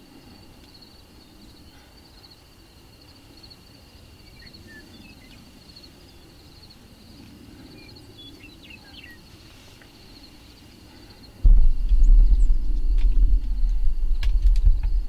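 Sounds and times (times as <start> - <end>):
insects trilling: 0.0 - 15.0
low rumble: 11.4 - 15.0.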